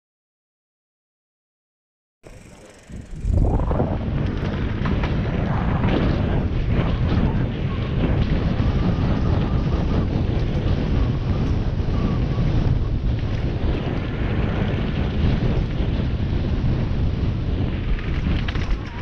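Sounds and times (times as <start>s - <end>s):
bike knocks and rattles: 2.2s - 9.3s, 17.7s - 19.0s
bike tyre noise: 2.2s - 19.0s
wind rushing over microphone: 2.3s - 19.0s.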